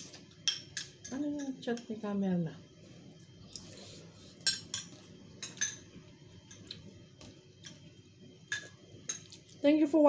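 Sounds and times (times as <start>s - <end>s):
spoons clinking against bowls: 0.4s - 1.9s, 4.4s - 5.9s, 8.5s - 9.4s.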